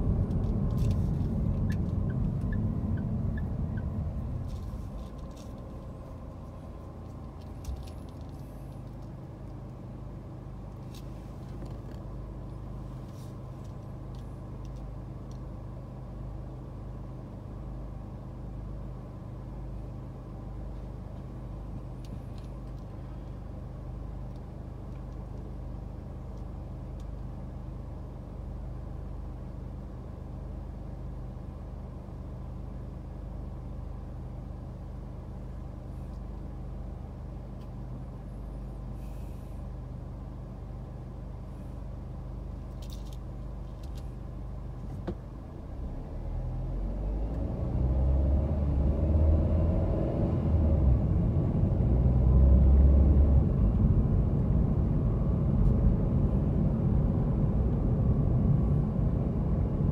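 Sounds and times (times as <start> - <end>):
car engine idling: 0.0 - 46.2
road rumble: 0.0 - 59.9.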